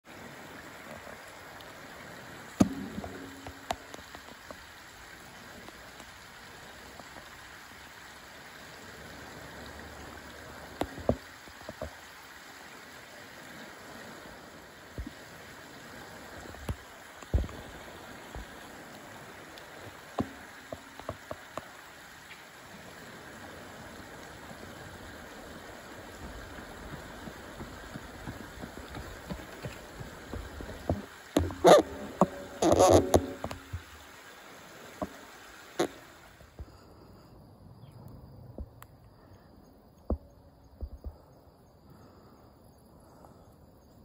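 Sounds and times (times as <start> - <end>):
flowing river water: 0.0 - 43.4
sharp knocks: 2.6 - 3.8.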